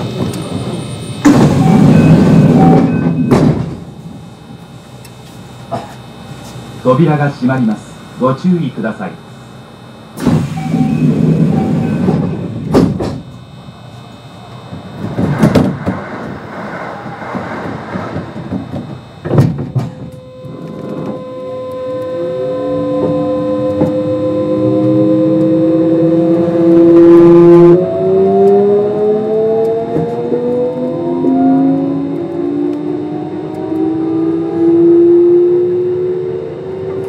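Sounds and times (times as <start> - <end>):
train motor whine: 0.0 - 37.0
heavy door clunks: 1.2 - 3.9, 10.2 - 13.2, 14.7 - 16.3, 17.3 - 21.2
air hissing bursts: 10.2 - 13.0.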